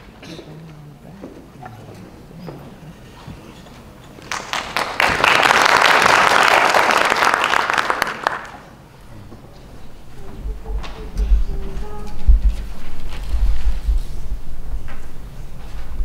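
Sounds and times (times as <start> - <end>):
audience applauding: 4.2 - 8.9.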